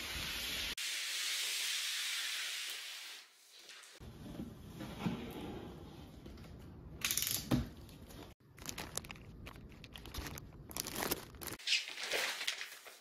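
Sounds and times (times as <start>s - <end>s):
plastic wrapping crinkling: 8.4s - 13.0s.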